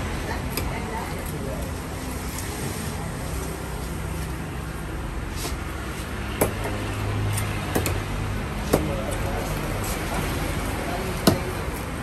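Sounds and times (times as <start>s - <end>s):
knife chopping on wood: 6.3s - 6.8s, 7.4s - 8.0s, 8.6s - 9.2s, 11.2s - 11.6s.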